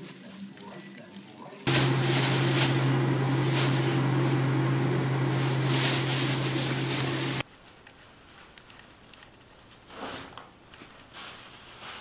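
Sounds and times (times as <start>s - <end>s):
low hum and hiss: 1.7s - 7.4s.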